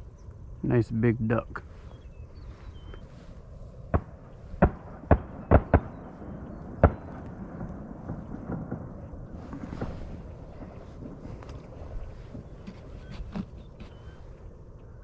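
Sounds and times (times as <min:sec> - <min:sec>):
distant shotgun shots: 0:03.9 - 0:12.6.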